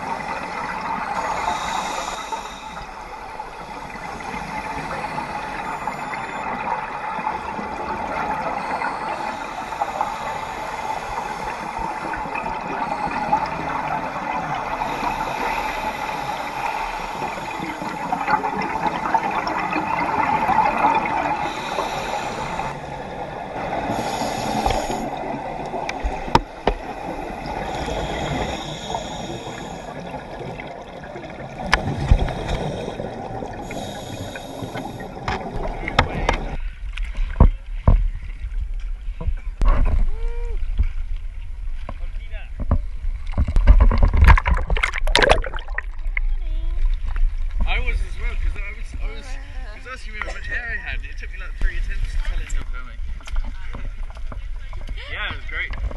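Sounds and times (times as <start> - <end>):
gurgling exhaled bubbles: 0.0 - 37.5, 43.2 - 48.6
underwater watery rush: 0.0 - 55.9.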